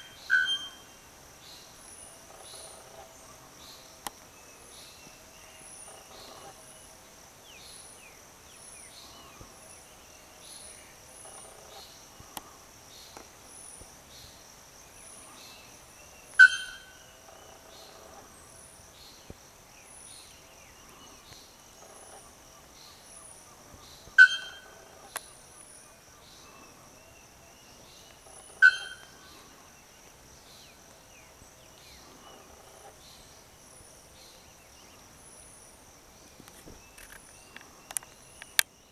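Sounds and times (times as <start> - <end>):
bird metallic calls: 0.0 - 1.0, 1.9 - 3.9, 4.6 - 6.9, 15.0 - 18.8, 19.9 - 29.6
faint high chirps: 0.0 - 1.0, 15.1 - 18.0, 20.1 - 25.6, 26.2 - 29.9
high insect drone: 0.0 - 38.9.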